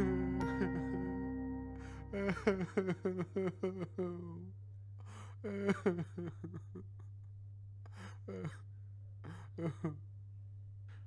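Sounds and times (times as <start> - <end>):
person making falling vocal sounds: 0.0 - 4.5.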